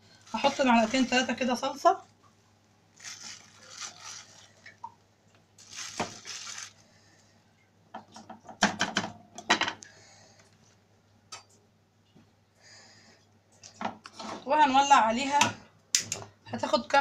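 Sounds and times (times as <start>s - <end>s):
plastic bag crinkling and scraping: 0.0s - 2.1s, 2.9s - 4.8s, 5.6s - 6.9s.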